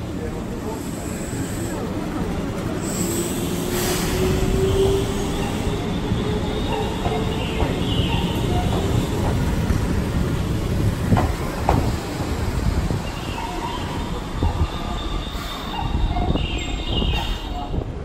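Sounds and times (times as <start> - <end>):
train rumbling on rails: 0.0 - 18.0
train wheels squealing: 2.8 - 9.2, 13.0 - 17.8.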